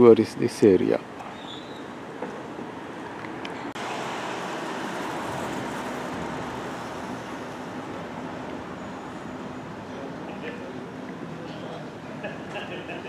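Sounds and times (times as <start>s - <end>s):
road traffic noise: 0.0s - 13.0s
vehicle passing by: 3.8s - 10.9s.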